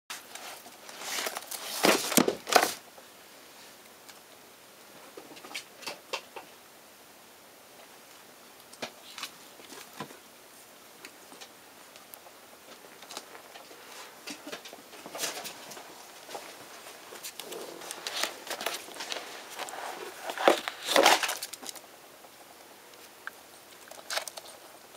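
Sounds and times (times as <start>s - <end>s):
ferrets scratching and rustling: 0.1s - 2.8s, 12.7s - 21.9s, 23.7s - 24.9s.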